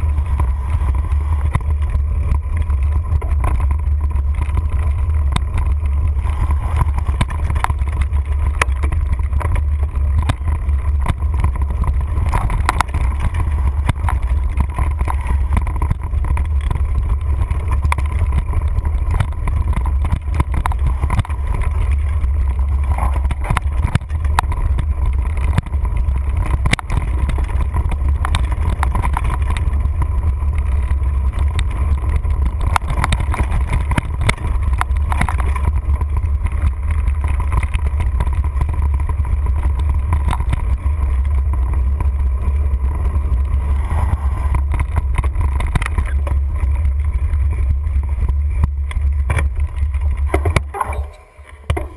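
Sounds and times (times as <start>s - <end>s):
bike rattling over rough trail: 0.0s - 51.9s.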